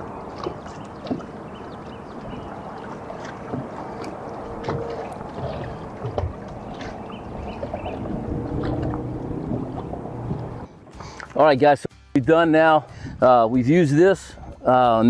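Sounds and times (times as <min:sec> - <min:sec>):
electric trolling motor humming: 0:00.0 - 0:10.7
water slapping against hull: 0:00.0 - 0:11.4.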